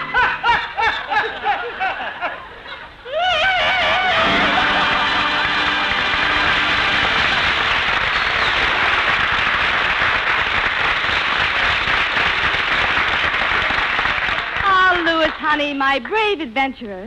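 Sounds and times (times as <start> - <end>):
studio audience applauding: 3.8 - 15.5.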